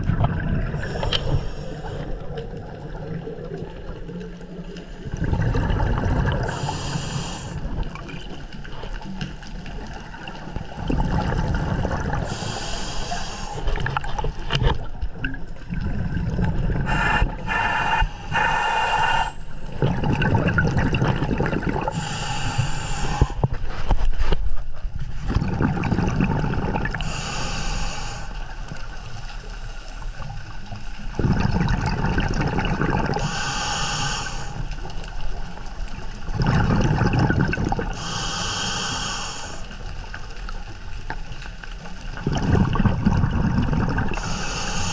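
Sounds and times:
exhaled bubbles rumbling: 0.0s - 44.9s
regulator inhale hiss: 0.8s - 2.3s, 6.4s - 7.8s, 12.2s - 13.9s, 16.8s - 19.6s, 21.9s - 23.5s, 27.0s - 28.5s, 33.2s - 35.1s, 37.9s - 39.9s, 44.2s - 44.9s.

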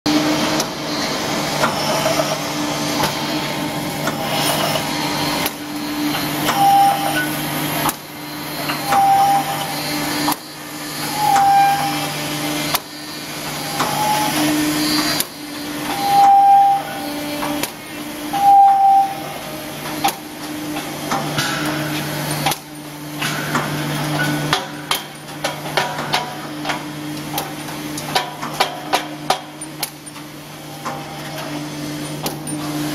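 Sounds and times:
machine electrical hum: 0.1s - 32.9s
short machine squeak: 6.4s - 7.4s, 8.5s - 12.2s, 12.9s - 17.6s, 18.4s - 19.3s.

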